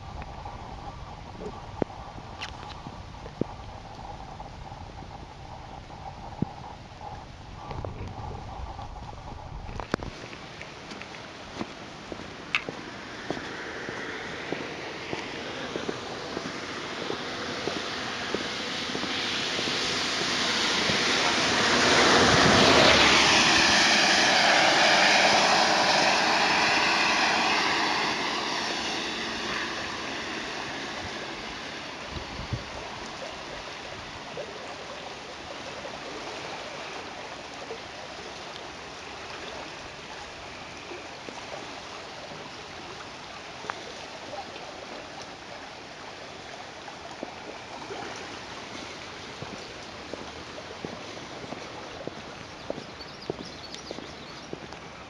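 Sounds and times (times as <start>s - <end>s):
floodwater rushing through creek: 0.0s - 55.0s
tyre hiss on wet road: 10.2s - 34.2s.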